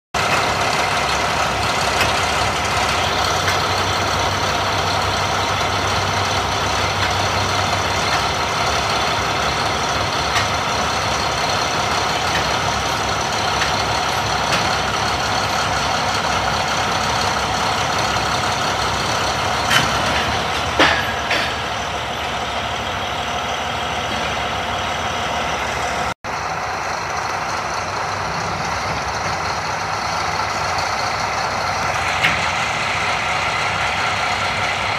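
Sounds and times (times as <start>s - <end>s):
diesel engines of heavy machines: 0.2s - 34.9s
sharp metallic clanks: 19.5s - 22.2s.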